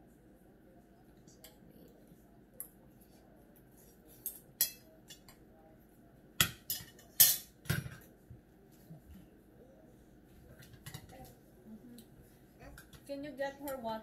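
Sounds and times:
cutlery clinking on a plate: 4.1 - 5.4, 6.4 - 8.1, 10.6 - 11.2.

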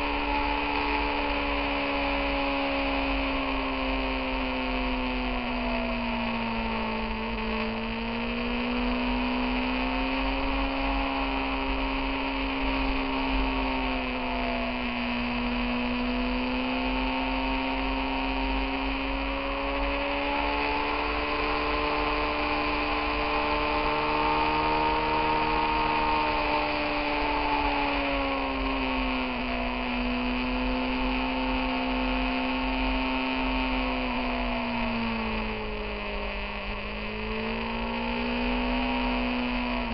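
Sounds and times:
motorcycle engine running: 0.0 - 39.9
wind and road rumble: 0.0 - 39.9.

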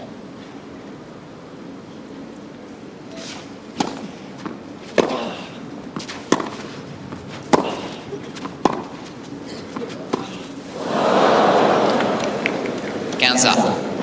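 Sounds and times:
racquets hitting tennis balls: 3.2 - 10.7.

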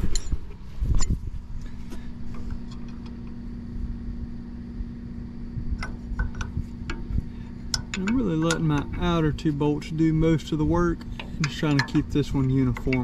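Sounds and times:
steady low hum: 0.0 - 13.0
wrench clinking on steel bolts: 7.7 - 9.2, 11.0 - 13.0.

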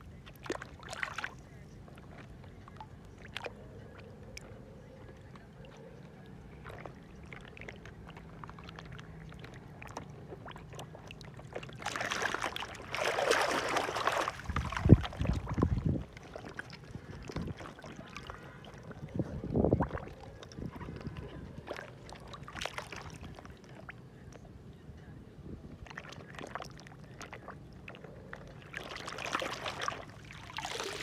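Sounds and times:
hand splashing in muddy water: 11.8 - 16.7, 28.7 - 31.0.

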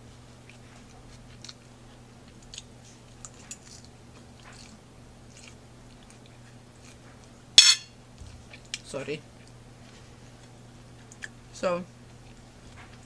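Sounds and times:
steady low hum: 0.0 - 13.0
chewing salad crunches: 0.4 - 7.4, 8.2 - 11.4.

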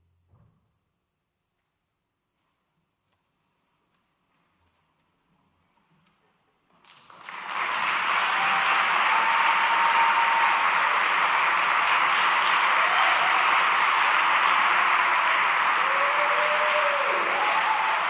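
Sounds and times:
audience applauding: 6.8 - 18.0.

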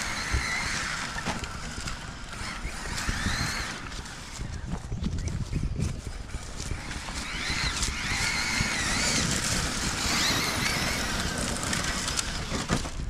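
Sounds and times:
electric motor whining: 0.0 - 13.0.

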